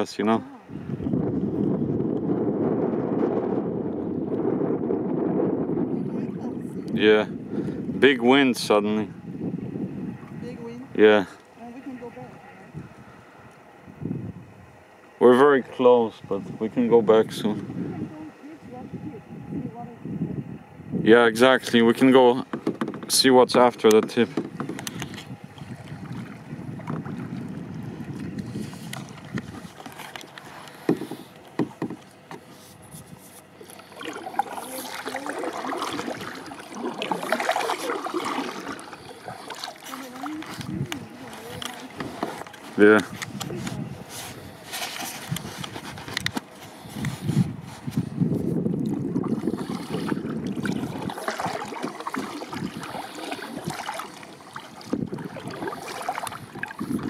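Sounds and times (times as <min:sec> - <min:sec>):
wind rumble on microphone: 0:00.6 - 0:11.0, 0:11.9 - 0:14.9, 0:15.5 - 0:39.4, 0:40.0 - 0:57.0
paddle knocking kayak hull: 0:22.2 - 0:32.5, 0:34.0 - 0:42.6, 0:48.7 - 0:57.0
water splashing from paddling: 0:22.4 - 0:43.4, 0:48.6 - 0:57.0.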